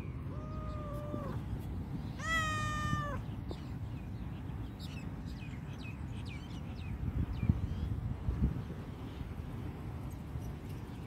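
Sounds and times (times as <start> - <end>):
cat meowing: 0.3 - 1.4, 2.2 - 3.2.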